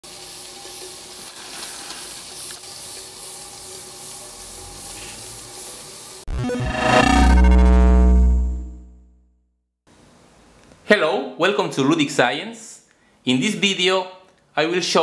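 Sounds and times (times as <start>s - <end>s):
steam hissing from jets: 0.1s - 6.2s
synthesizer music: 6.3s - 9.2s.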